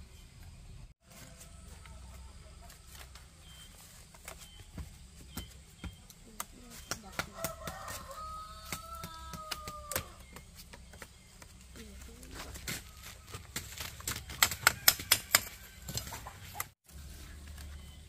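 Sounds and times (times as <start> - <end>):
rooster crowing: 7.2 - 10.2, 14.4 - 16.4
bamboo strips clicking and clattering: 8.6 - 17.8.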